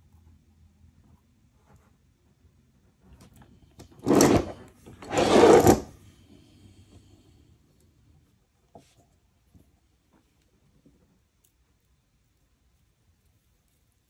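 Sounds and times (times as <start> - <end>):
plastic scraping on wooden desk: 3.9 - 5.9.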